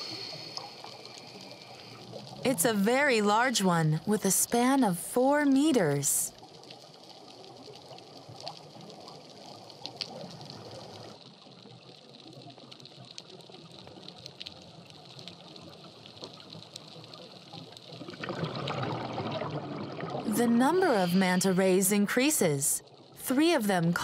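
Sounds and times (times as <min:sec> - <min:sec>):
tiny underwater clicks and crackles: 0:00.0 - 0:24.0
underwater water noise: 0:00.0 - 0:24.0.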